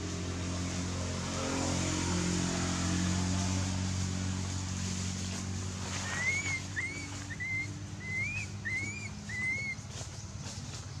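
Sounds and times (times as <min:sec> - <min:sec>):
high whistle-like animal calls: 0:06.0 - 0:09.8.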